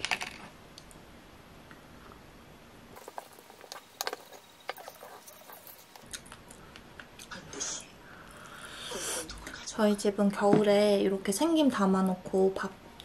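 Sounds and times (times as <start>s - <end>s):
wooden spoon scraping earthenware bowl: 3.0s - 6.1s
chewing: 3.0s - 6.6s.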